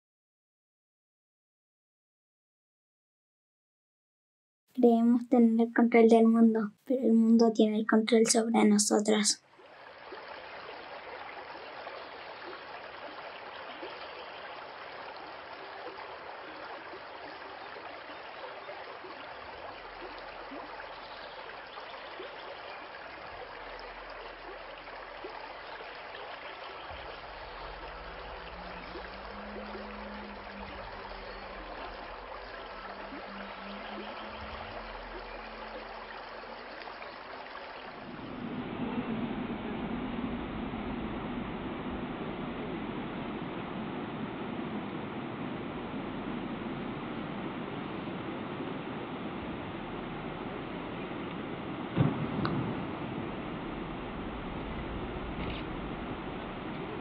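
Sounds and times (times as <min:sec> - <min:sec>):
rushing crackling noise: 0:09.6 - 0:57.0
low held drone tone: 0:26.7 - 0:57.0
deep low rumble: 0:26.9 - 0:36.0, 0:38.0 - 0:48.3, 0:49.4 - 0:57.0.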